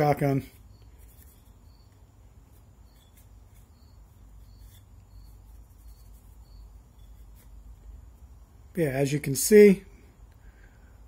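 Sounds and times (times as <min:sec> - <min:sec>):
cloth rubbing on metal: 0:02.4 - 0:07.8.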